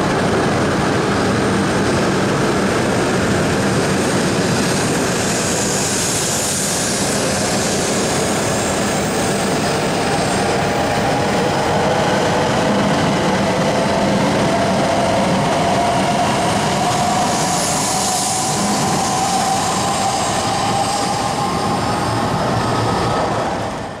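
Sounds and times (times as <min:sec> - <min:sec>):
train rushing past: 0:00.0 - 0:24.0.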